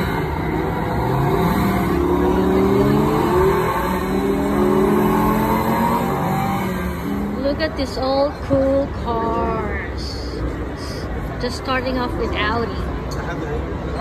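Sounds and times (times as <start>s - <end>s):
sports car engine revving: 0.0s - 9.1s.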